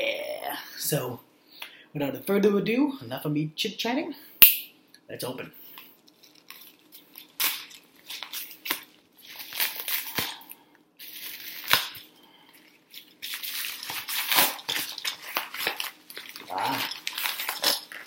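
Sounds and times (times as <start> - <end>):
paper mailer rustling and tearing: 6.1 - 18.0.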